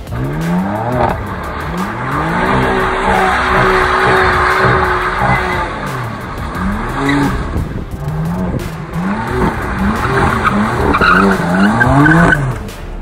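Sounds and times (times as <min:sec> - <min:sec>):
car engine revving: 0:00.0 - 0:13.0
tyres squealing: 0:09.0 - 0:12.6.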